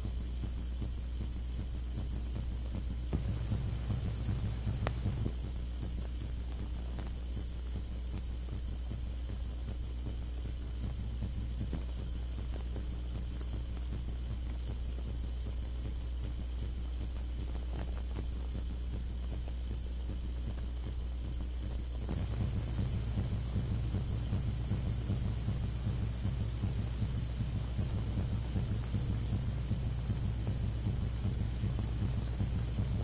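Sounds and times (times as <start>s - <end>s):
faint hiss: 0.0s - 33.0s
low electrical hum: 0.0s - 33.0s
faint clicks: 4.2s - 5.2s.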